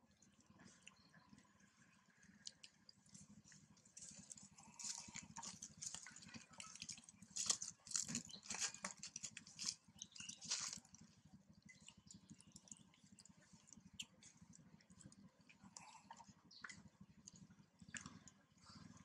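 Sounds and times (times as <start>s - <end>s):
macaque suckling wet clicks: 2.4s - 3.6s, 11.7s - 18.4s.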